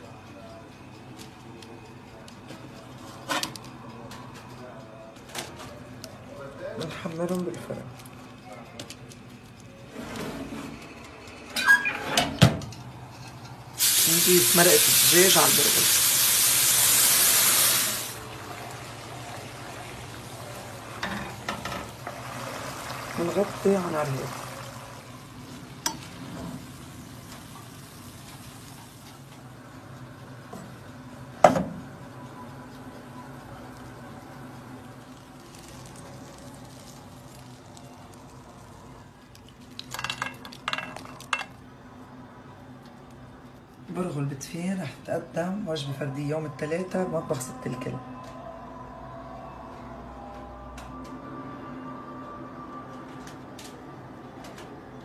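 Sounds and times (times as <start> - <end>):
broth hissing in hot pot: 13.7 - 21.0, 21.9 - 29.2
dishes and utensils clinking: 39.8 - 41.6.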